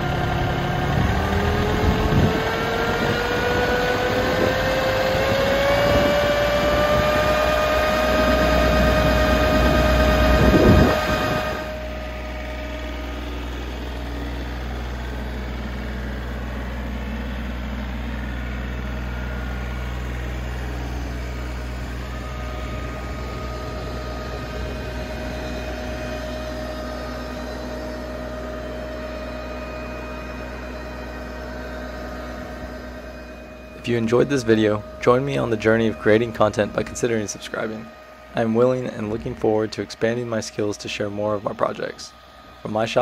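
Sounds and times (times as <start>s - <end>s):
tractor diesel engine drone: 0.0s - 43.0s.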